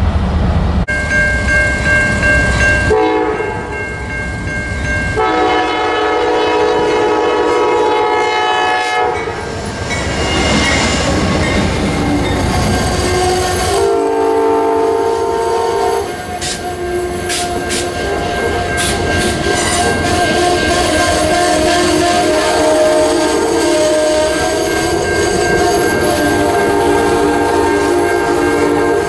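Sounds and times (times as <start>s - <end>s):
train rumble: 0.0s - 29.0s
train air horn: 2.9s - 3.6s, 5.2s - 9.4s, 12.8s - 29.0s.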